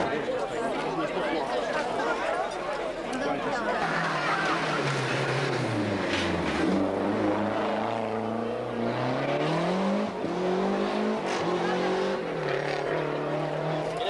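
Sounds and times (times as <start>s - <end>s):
rally car accelerating: 3.8s - 14.0s.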